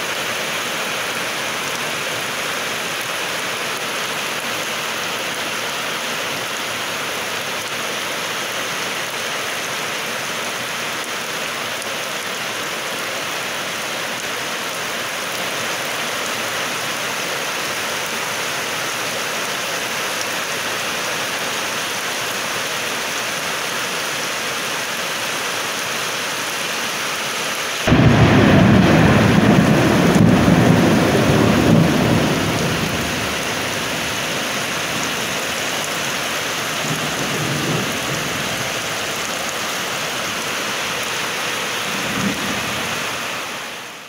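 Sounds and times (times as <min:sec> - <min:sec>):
heavy rain falling: 0:00.0 - 0:44.0
thunder rumble: 0:27.9 - 0:35.0.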